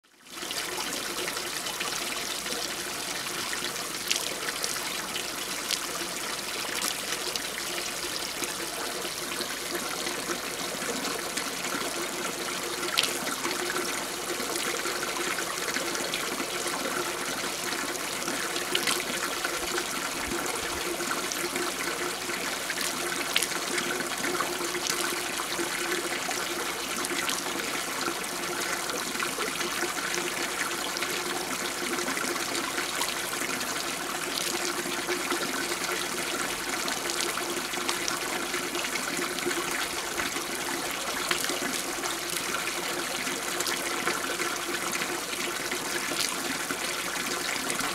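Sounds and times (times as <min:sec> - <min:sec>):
water splashing from pipe: 0:03.5 - 0:47.9.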